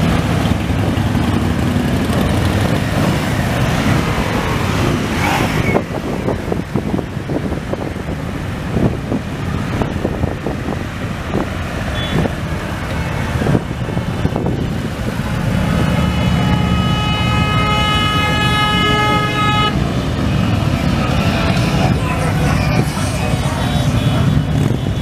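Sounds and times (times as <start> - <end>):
motorcycles passing: 0.0 - 25.0
steady horn note: 15.9 - 19.8.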